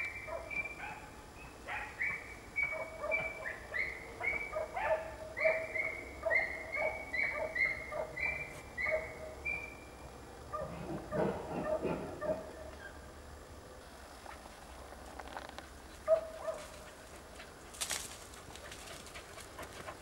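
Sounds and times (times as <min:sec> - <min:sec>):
dog barking high-pitched: 0:04.2 - 0:09.2, 0:10.6 - 0:12.5.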